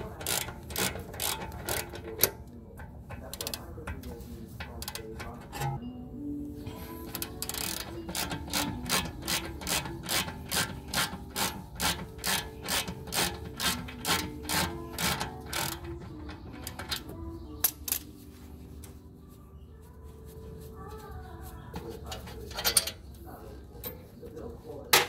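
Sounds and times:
ratchet wrench clicking: 0.0 - 4.0, 4.6 - 5.8, 7.0 - 18.1.

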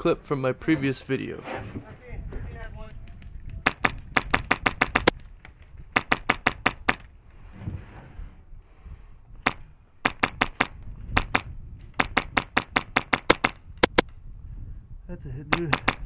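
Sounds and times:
airsoft gun firing bursts: 3.6 - 5.1, 5.9 - 7.0, 9.4 - 14.0, 15.5 - 16.0.

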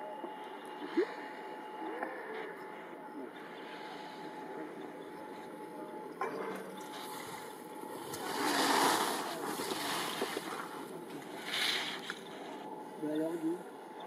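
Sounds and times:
skis carving across snow: 8.2 - 12.1.

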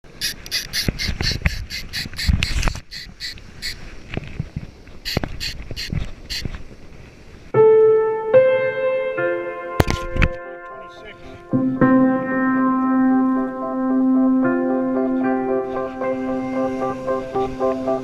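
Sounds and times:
sharp clicks: 0.2 - 3.8, 5.1 - 6.6
wind buffeting microphone: 0.7 - 7.5
piano music: 7.6 - 18.0.

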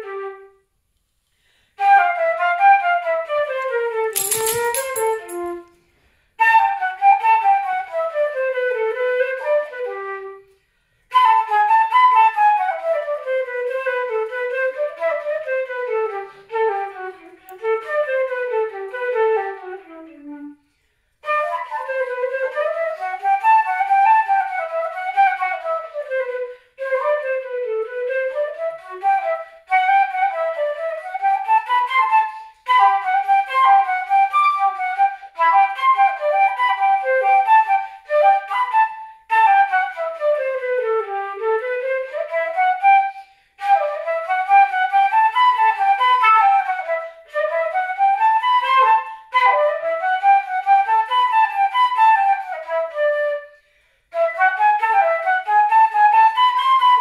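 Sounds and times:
solo flute playing fast: 0.0 - 0.7, 1.8 - 5.7, 6.4 - 57.0.

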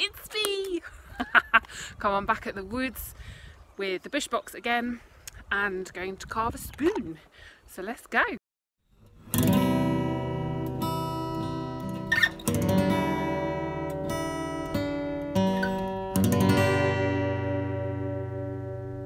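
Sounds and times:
acoustic guitar strummed chords: 9.1 - 19.0.

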